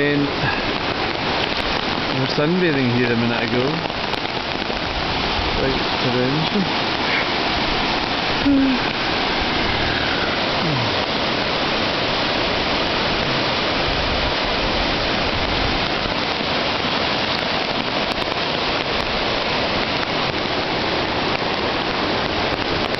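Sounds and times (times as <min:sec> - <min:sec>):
flooded river rushing: 0:00.0 - 0:22.9.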